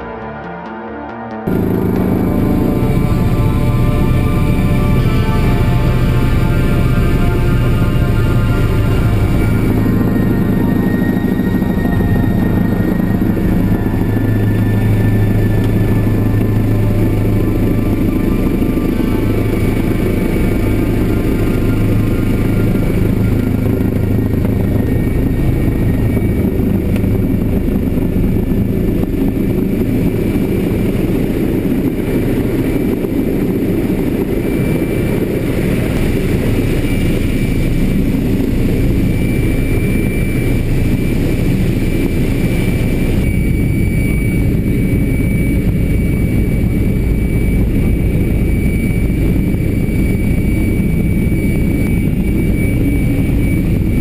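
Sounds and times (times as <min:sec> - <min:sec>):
spacecraft engine rumbling drone: 0:00.0 - 0:54.0.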